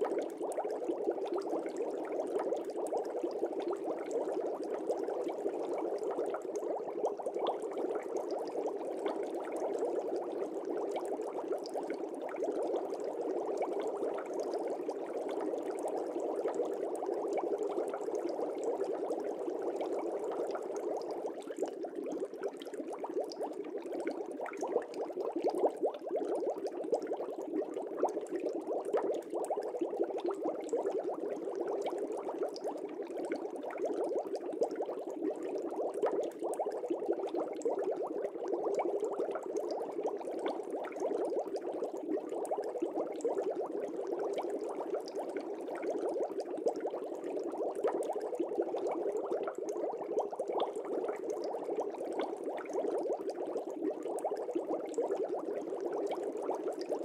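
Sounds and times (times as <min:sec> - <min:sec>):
fish tank water bubbling: 0:17.5 - 0:57.0.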